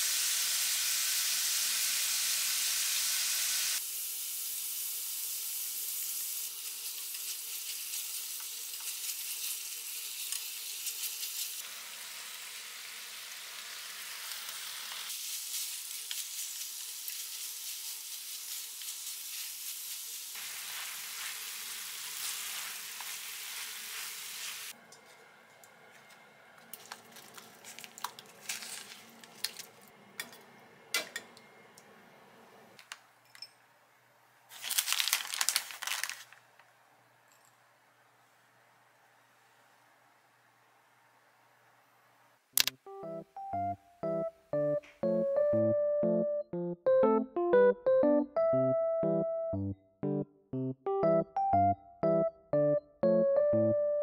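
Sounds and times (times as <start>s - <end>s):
meat and cabbage sizzling in a pan: 0.0s - 24.8s.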